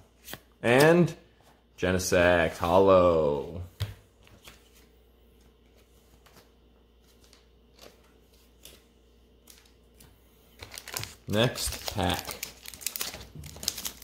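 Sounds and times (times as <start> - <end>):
trading cards tapping and rustling: 9.5 - 14.0.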